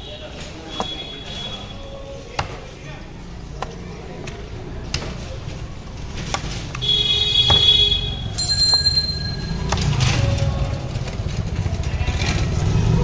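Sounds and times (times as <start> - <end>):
low rumble of street noise: 0.0 - 13.0
metallic bell ringing: 8.3 - 9.7.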